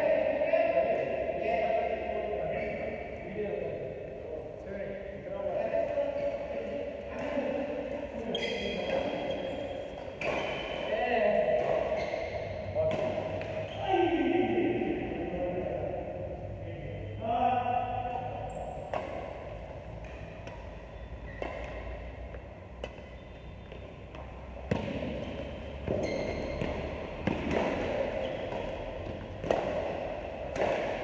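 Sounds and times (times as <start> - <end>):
racket striking shuttlecock: 8.8 - 10.9, 11.5 - 13.7, 18.8 - 31.0.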